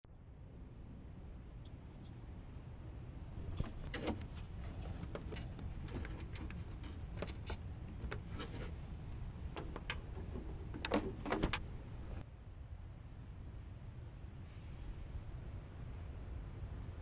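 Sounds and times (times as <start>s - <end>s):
steady low rumble: 0.0s - 17.0s
faint steady hiss: 0.1s - 17.0s
hands clicking and knocking parts: 9.6s - 11.6s.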